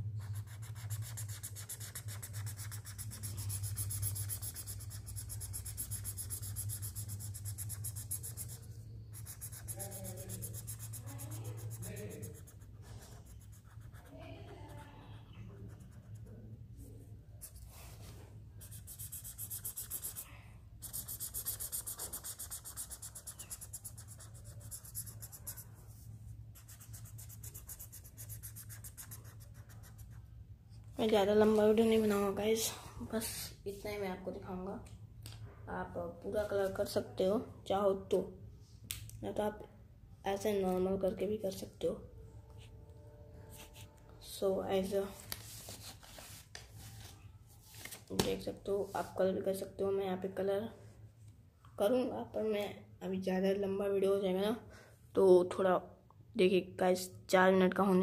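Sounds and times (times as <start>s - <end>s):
felt-tip pen scratching on paper: 0.2s - 14.8s, 20.8s - 26.0s.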